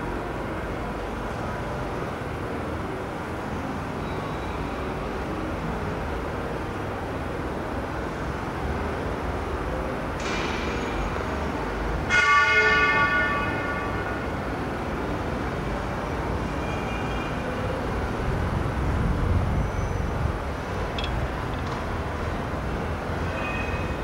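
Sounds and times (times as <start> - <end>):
loud metallic ring: 20.9 - 21.7.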